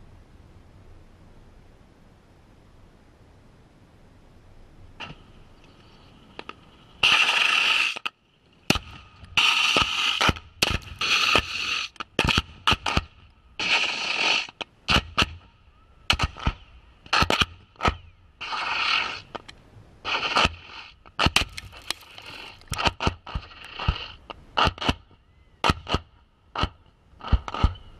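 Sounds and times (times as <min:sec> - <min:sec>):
sharp cracks of munitions: 0:16.1 - 0:18.0, 0:24.6 - 0:27.8.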